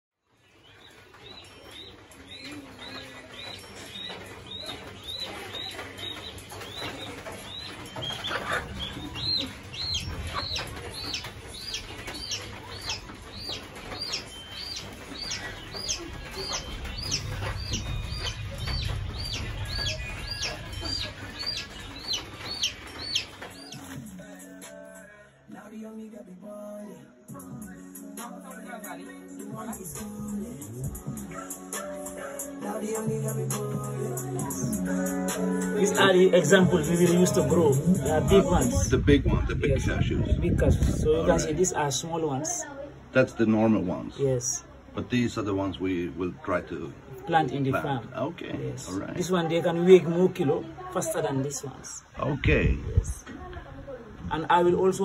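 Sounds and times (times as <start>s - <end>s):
chick peeping: 0.3s - 24.4s.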